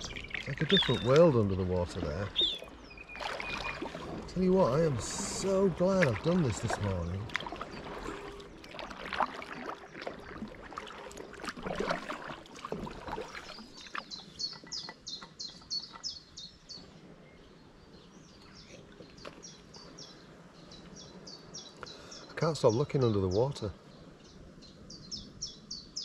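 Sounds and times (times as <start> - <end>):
songbird chirping: 0.0 - 8.7, 13.0 - 26.0
paddle splashes and drips: 0.0 - 17.2, 18.4 - 21.0.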